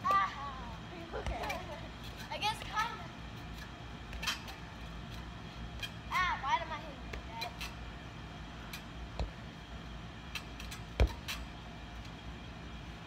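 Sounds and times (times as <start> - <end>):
hollow rubber ball thumps: 9.1 - 9.4.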